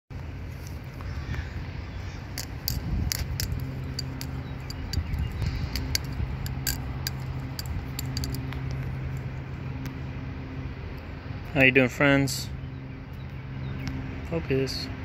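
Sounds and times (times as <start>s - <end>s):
low steady hum: 0.1s - 11.8s
butterfly knife metallic clicks: 2.3s - 8.9s.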